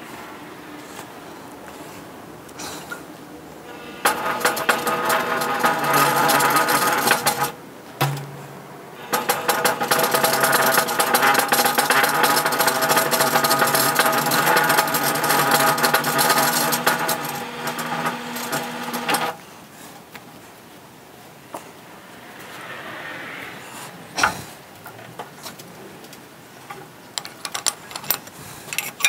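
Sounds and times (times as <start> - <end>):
bead roller metallic clatter: 3.9 - 7.6, 9.1 - 19.3.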